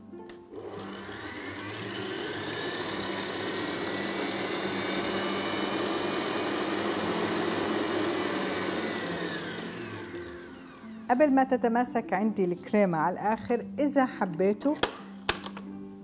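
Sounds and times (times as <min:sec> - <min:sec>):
stand mixer motor whine: 0:00.5 - 0:11.2.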